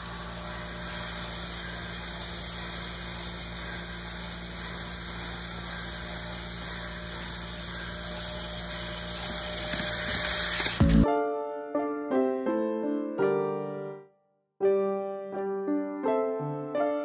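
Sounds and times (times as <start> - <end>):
model electric train hum and hiss: 0.0 - 11.0.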